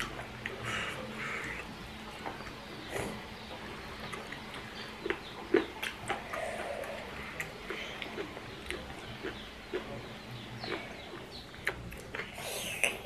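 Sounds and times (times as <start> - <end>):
chewing: 4.0 - 13.0
lip smacks and clicks: 4.1 - 9.9, 10.6 - 13.0.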